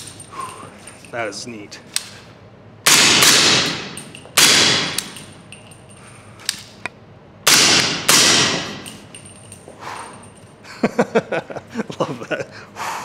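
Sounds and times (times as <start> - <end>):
suppressed gunshots with echo: 2.9 - 5.0, 7.5 - 8.8.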